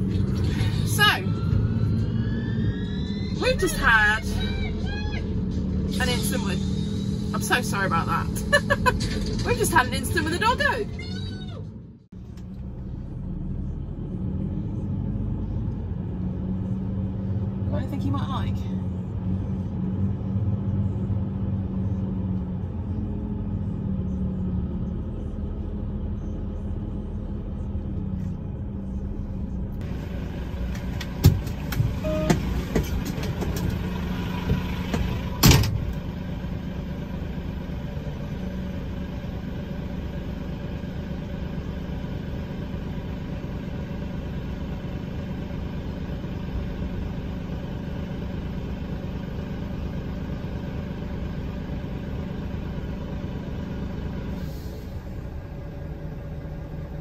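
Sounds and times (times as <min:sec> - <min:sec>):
diesel engine idling: 0:00.0 - 0:57.0
knocks and clunks: 0:30.6 - 0:36.0.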